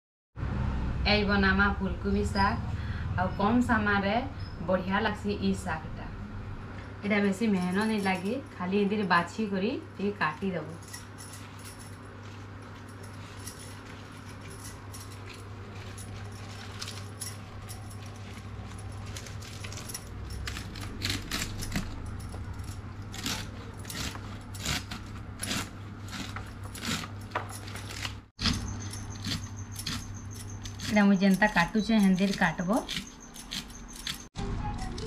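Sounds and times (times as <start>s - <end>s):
glass bangles clinking: 7.5s - 9.1s, 10.6s - 34.3s.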